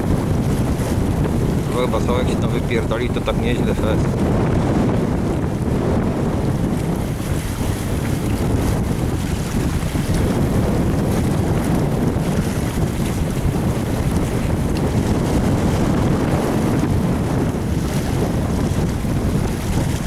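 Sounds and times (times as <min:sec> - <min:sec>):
strong wind on microphone: 0:00.0 - 0:20.0.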